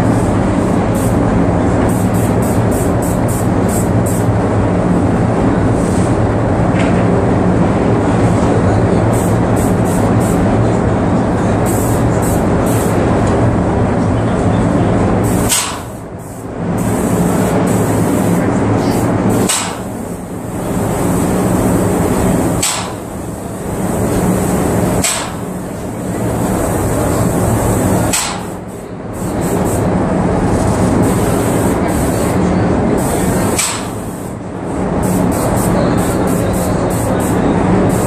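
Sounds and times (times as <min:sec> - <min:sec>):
paint sprayer hissing and humming: 0:00.1 - 0:04.4, 0:09.1 - 0:10.5, 0:11.6 - 0:13.0, 0:15.2 - 0:29.9, 0:30.5 - 0:34.4, 0:35.0 - 0:38.0
pump sharp click: 0:15.5 - 0:15.9, 0:19.5 - 0:19.8, 0:22.6 - 0:23.0, 0:25.0 - 0:25.4, 0:28.1 - 0:28.5, 0:33.6 - 0:33.9.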